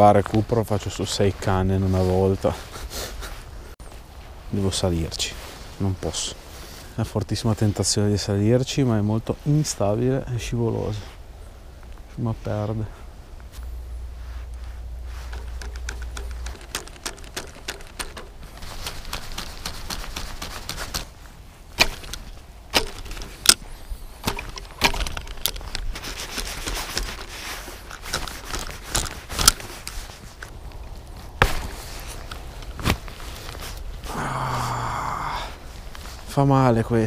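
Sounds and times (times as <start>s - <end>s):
fishing reel clicks and knocks: 15.3s - 18.5s.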